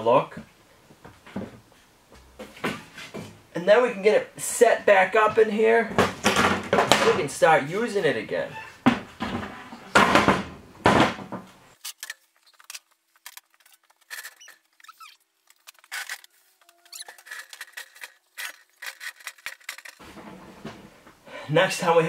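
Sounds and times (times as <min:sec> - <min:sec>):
loud rustling or scraping: 0:11.7 - 0:21.2
brief squeak: 0:14.2 - 0:15.2, 0:15.9 - 0:17.4.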